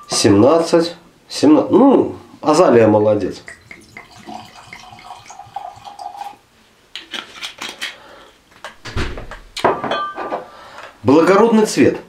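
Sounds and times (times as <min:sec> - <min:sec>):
bottle clicks and knocks: 0:03.4 - 0:04.5
wine pouring into a glass: 0:03.4 - 0:06.4.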